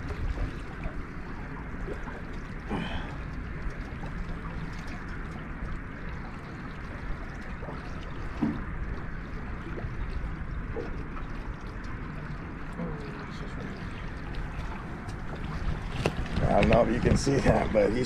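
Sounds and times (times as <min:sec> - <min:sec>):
river water washing around boat: 0:00.0 - 0:18.0
wind on microphone: 0:14.4 - 0:18.0.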